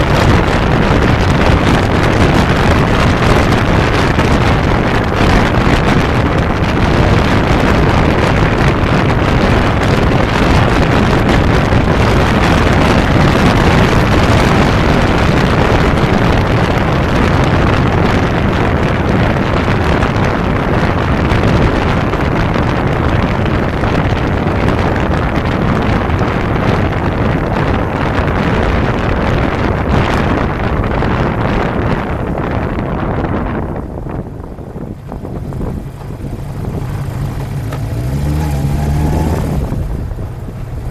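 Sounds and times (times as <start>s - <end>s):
motorcycle engine running: 0.0s - 40.9s
wind rushing over microphone: 0.0s - 40.9s
tyre noise: 33.4s - 40.9s.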